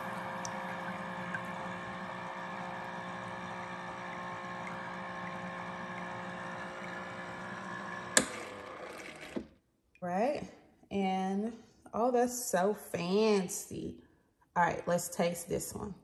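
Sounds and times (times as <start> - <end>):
pump humming: 0.0 - 9.4.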